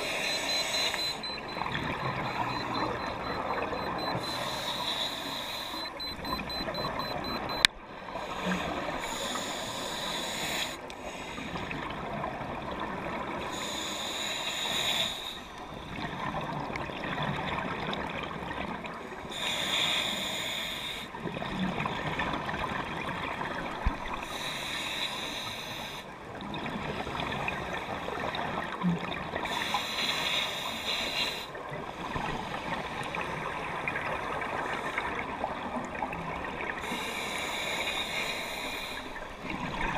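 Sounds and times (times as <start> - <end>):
exhaled bubbles underwater: 0.0 - 5.1, 11.1 - 13.8, 15.6 - 19.4, 21.1 - 24.4, 38.4 - 39.9
thin electronic beeping: 0.0 - 7.7
underwater hiss: 4.2 - 5.8, 8.2 - 11.8, 13.5 - 15.6, 19.3 - 21.1, 24.2 - 26.1, 29.4 - 31.5, 36.8 - 39.2.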